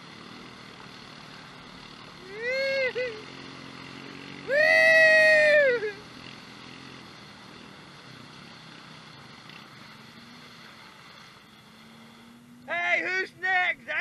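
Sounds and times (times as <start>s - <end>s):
four-wheeler engine humming: 0.0s - 14.0s
high-pitched whoop: 2.2s - 3.2s, 4.4s - 6.0s.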